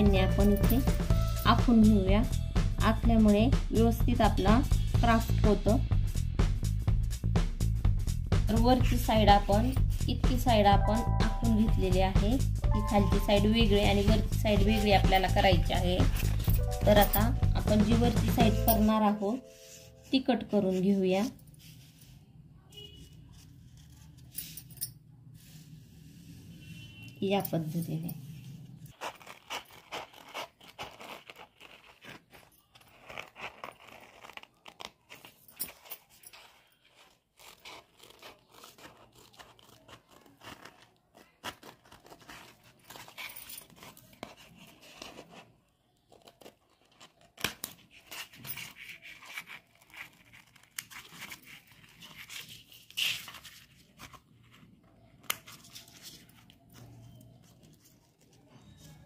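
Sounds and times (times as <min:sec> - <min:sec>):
scissors snipping paper: 0:28.9 - 0:59.0.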